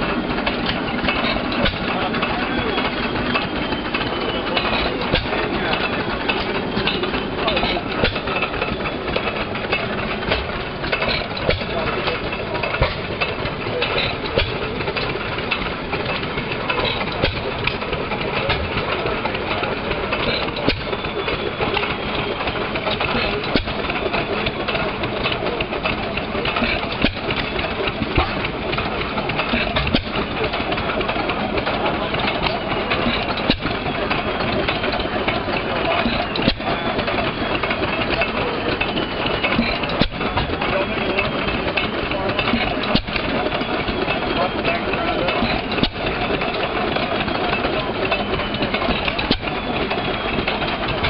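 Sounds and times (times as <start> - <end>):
engine mechanical clatter: 0.0 - 51.0
sharp engine knocks: 0.0 - 51.0.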